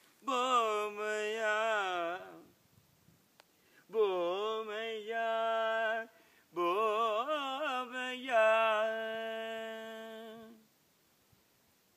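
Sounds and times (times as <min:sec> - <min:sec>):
man singing unaccompanied: 0:00.1 - 0:02.6, 0:03.8 - 0:10.7.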